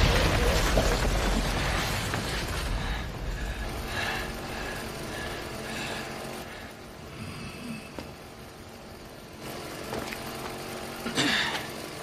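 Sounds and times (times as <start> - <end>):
debris settling: 0.0 - 3.7
crash rumble: 0.0 - 5.2.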